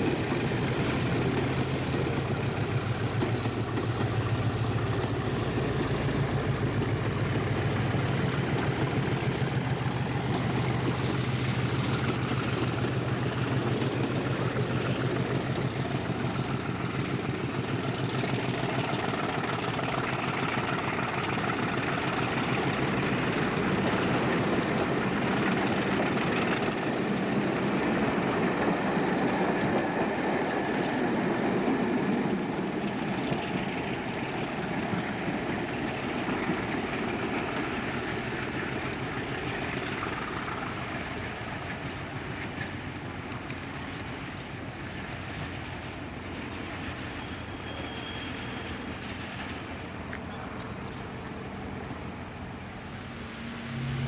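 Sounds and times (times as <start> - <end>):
diesel locomotive engine hum: 0.0 - 54.0
rail noise from coaches: 0.0 - 54.0.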